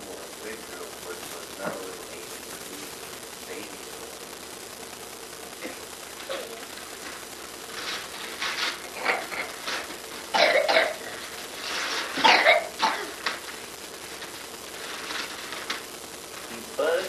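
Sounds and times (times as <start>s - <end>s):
person coughing: 10.4s - 11.2s, 12.2s - 13.2s.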